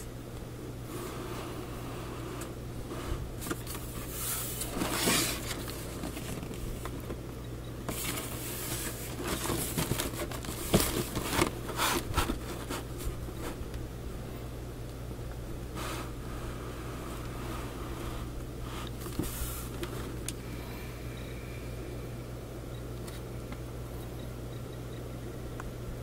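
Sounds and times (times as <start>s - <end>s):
steady low hum: 0.0s - 26.0s
cardboard box rubbing and scraping: 3.8s - 6.7s, 7.9s - 13.6s.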